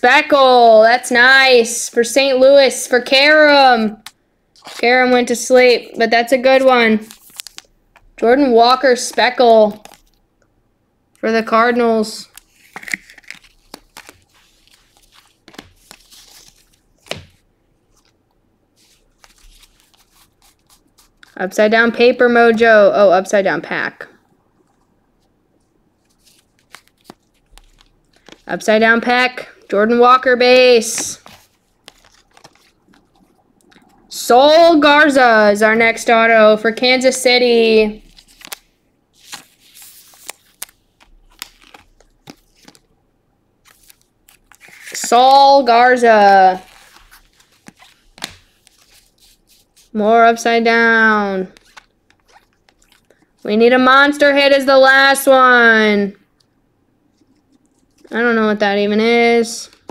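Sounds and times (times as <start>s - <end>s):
wrapper tearing and crinkling: 7.0s - 7.7s, 12.3s - 18.2s, 18.8s - 21.4s, 26.1s - 28.4s, 31.2s - 33.3s, 38.0s - 42.9s, 43.6s - 45.1s, 46.5s - 49.9s, 51.5s - 53.3s
cards and plastic sleeve clicking: 12.3s - 17.4s, 26.1s - 28.4s, 31.2s - 33.0s, 39.2s - 42.8s, 46.7s - 49.4s.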